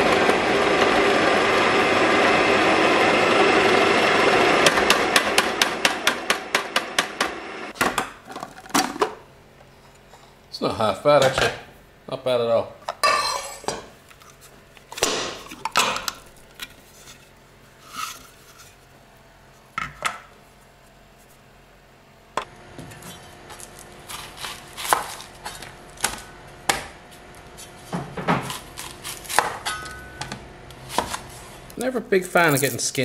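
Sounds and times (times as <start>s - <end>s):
food processor bowl scraping pan: 0.0s - 7.8s.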